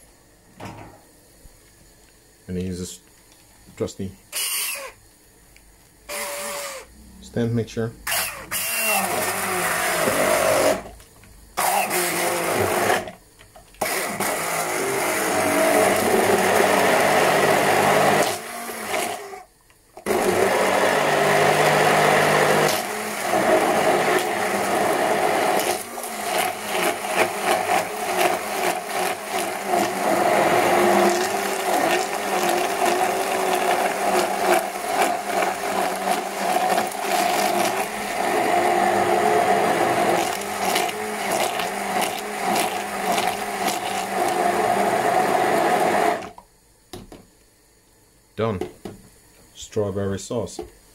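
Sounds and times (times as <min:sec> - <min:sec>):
stick blender running: 0:06.1 - 0:06.9, 0:08.0 - 0:11.0, 0:11.6 - 0:13.2, 0:13.8 - 0:46.4.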